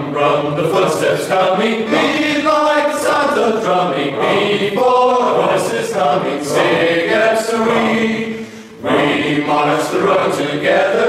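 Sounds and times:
male choir singing in harmony: 0.0 - 11.0.

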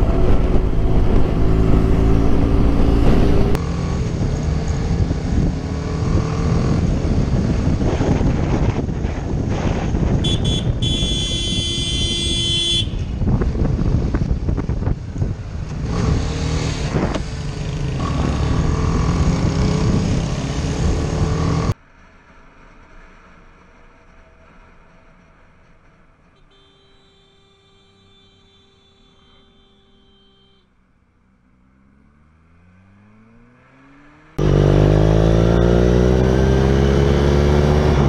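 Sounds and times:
motorcycle engine: 0.0 - 9.3, 10.2 - 21.8, 27.9 - 38.0
wind noise: 0.0 - 21.8
vehicle horn: 10.2 - 13.1, 26.4 - 30.8.

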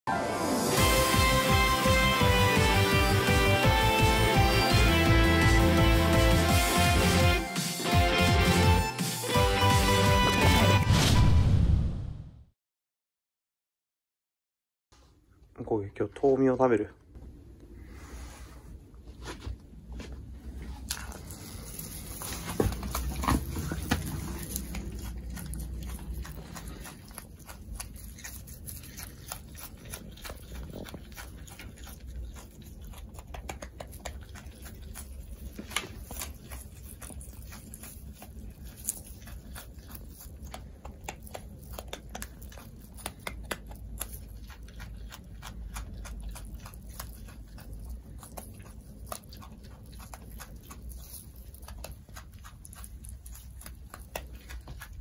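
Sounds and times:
crisp chewing clicks: 20.8 - 55.0.

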